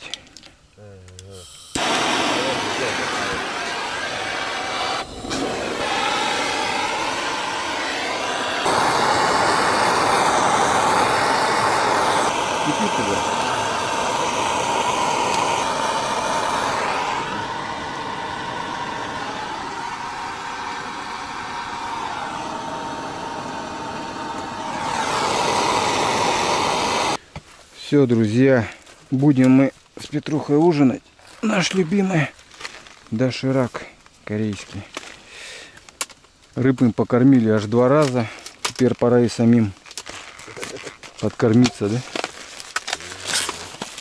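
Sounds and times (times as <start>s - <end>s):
gas torch hissing: 1.2s - 27.2s
kettle boiling: 1.4s - 27.2s.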